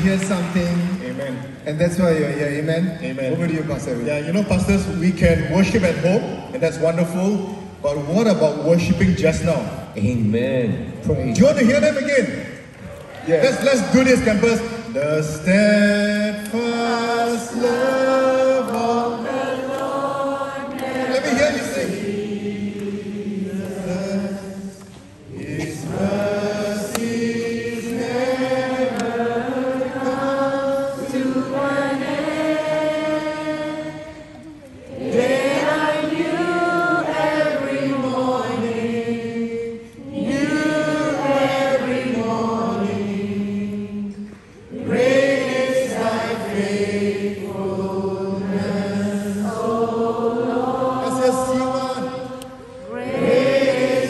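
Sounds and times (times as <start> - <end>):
men singing in harmony: 15.0 - 34.4, 35.1 - 54.0.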